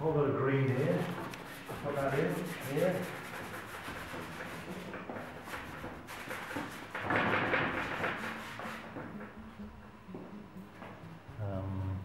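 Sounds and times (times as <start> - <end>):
paintbrush rubbing on canvas: 0.6 - 9.2.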